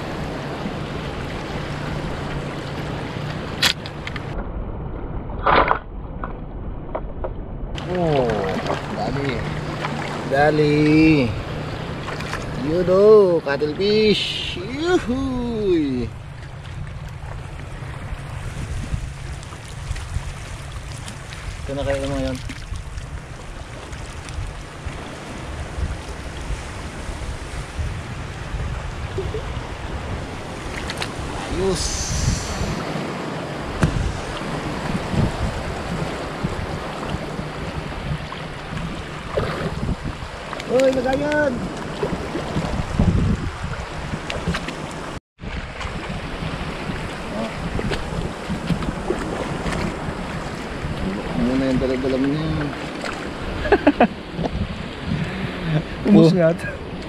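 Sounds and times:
shallow seawater sloshing: 0:07.8 - 0:57.0
wind on the microphone: 0:13.7 - 0:57.0.

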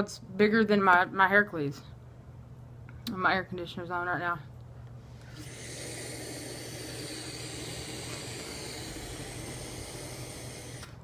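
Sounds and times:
vape drag hiss: 0:05.2 - 0:11.0.

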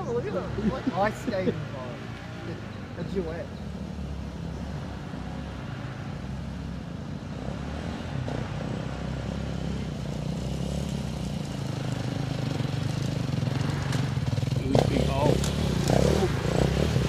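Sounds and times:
dirt bike engine running: 0:10.8 - 0:17.0.

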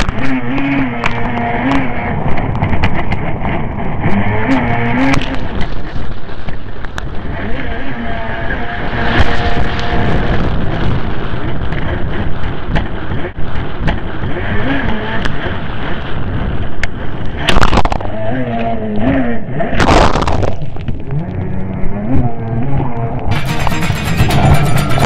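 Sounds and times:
spray and wind buffeting microphone: 0:00.0 - 0:18.2
jet ski engine running hard: 0:00.0 - 0:19.6.

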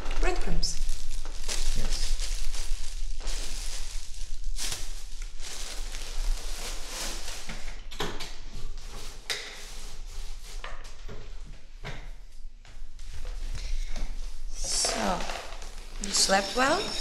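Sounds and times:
steady low hum: 0:00.0 - 0:07.9.

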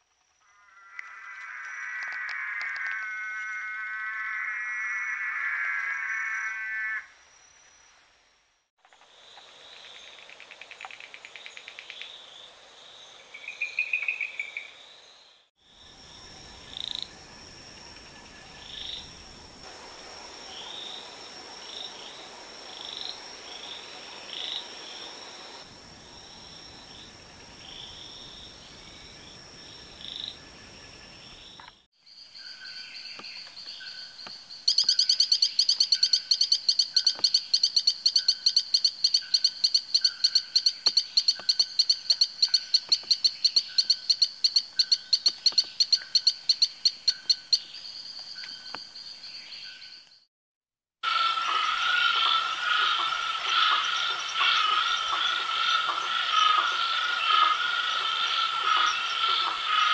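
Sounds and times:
frog pulsed call: 0:00.4 - 0:07.5, 0:51.0 - 0:59.9
frog chirps: 0:32.4 - 0:47.7, 0:51.0 - 0:59.9.

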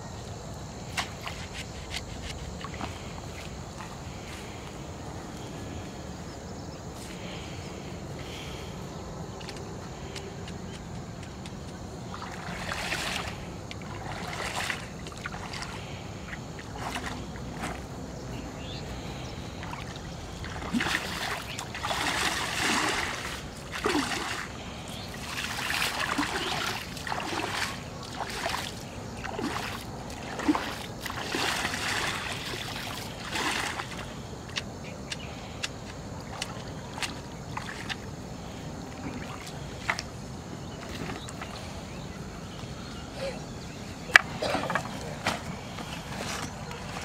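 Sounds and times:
pole splashing in water: 0:00.9 - 0:03.9, 0:11.2 - 0:17.9, 0:19.6 - 0:38.1, 0:38.9 - 0:40.1.

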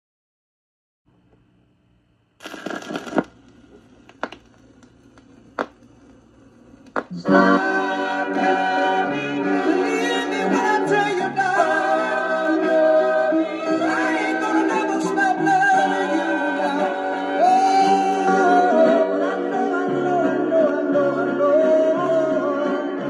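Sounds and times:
vinyl record sharp clicks: 0:02.4 - 0:07.3
lead vocal singing: 0:07.1 - 0:23.0.

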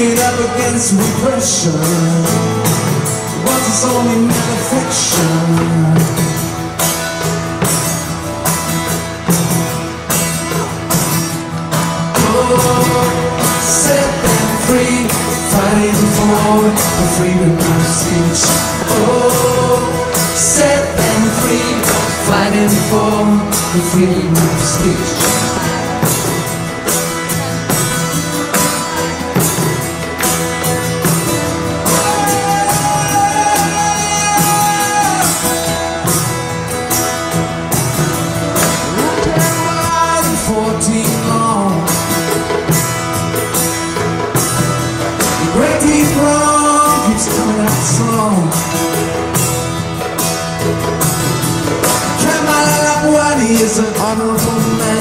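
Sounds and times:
acoustic guitar strumming: 0:00.0 - 0:55.0
percussion beat: 0:00.0 - 0:55.0
person singing: 0:12.0 - 0:27.2, 0:31.7 - 0:36.2, 0:38.7 - 0:42.3, 0:45.2 - 0:49.0.

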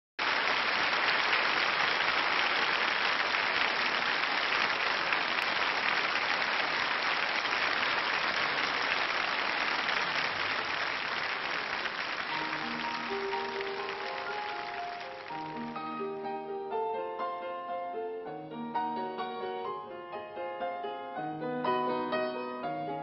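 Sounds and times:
audience applauding: 0:00.2 - 0:16.0
grand piano playing: 0:10.0 - 0:23.0.

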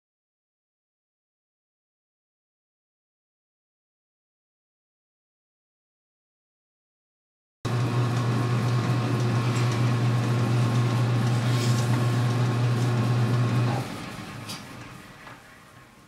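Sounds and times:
metal lathe motor hum: 0:07.7 - 0:16.0.

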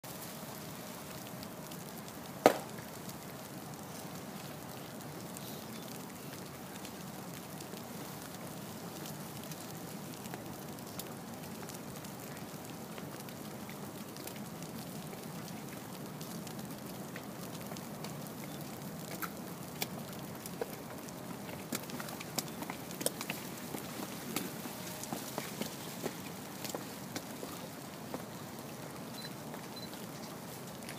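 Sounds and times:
rain on umbrellas and stone: 0:00.0 - 0:30.9.

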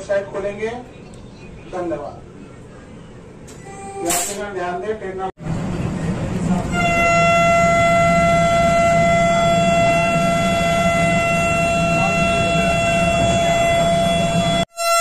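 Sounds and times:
low noise of moving train: 0:00.0 - 0:15.0
electric train horn long blast: 0:03.6 - 0:04.4, 0:06.6 - 0:15.0.

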